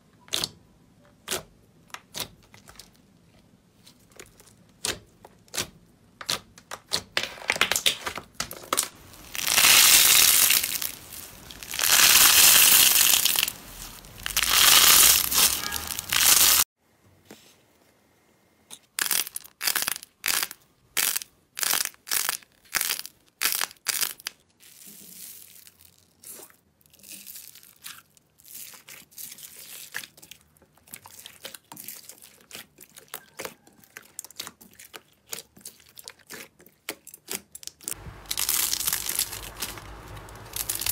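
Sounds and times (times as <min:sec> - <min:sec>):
slime squelching: 0:00.2 - 0:16.6, 0:26.2 - 0:40.9
beads popping in slime: 0:04.8 - 0:13.6, 0:18.8 - 0:24.4
beaded slime crackling: 0:09.0 - 0:16.7, 0:19.0 - 0:26.4, 0:37.2 - 0:40.9.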